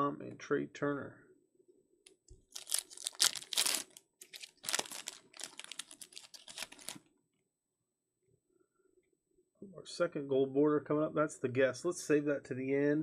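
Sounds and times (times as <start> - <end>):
foil wrapper tearing and crinkling: 2.4 - 7.0.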